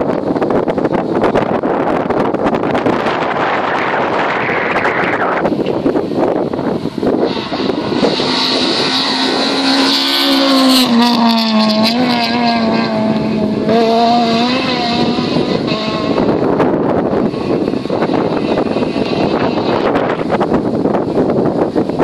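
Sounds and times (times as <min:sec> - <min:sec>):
steady rushing noise: 0:00.0 - 0:22.0
rally car engine high revs: 0:07.0 - 0:20.6.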